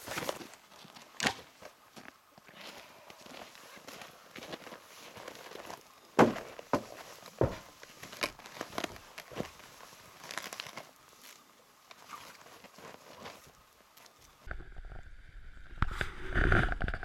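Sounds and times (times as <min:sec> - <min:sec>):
crinkling fabric: 0:00.0 - 0:14.5
bag thumping onto plastic sled: 0:05.2 - 0:10.9.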